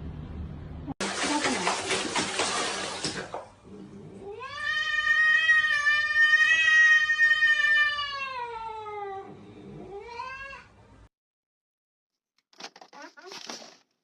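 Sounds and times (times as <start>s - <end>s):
cat meowing: 4.2s - 10.7s.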